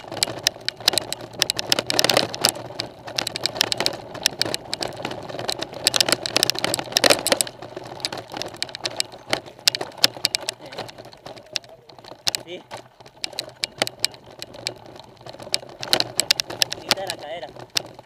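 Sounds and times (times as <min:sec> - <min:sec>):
bike rattling clicks and knocks: 0:00.0 - 0:18.0
tyres rumbling on gravel: 0:00.0 - 0:18.0.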